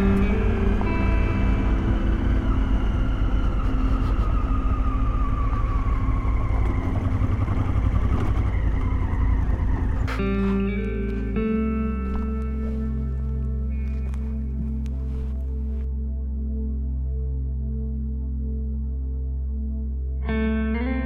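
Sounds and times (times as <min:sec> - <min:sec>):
motorcycle engine: 0:00.0 - 0:15.9
background music: 0:00.0 - 0:21.0
tyres on loose gravel: 0:06.7 - 0:15.8.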